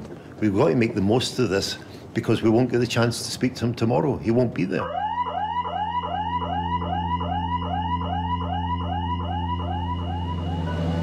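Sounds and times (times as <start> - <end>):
siren warbling: 4.8 - 11.0.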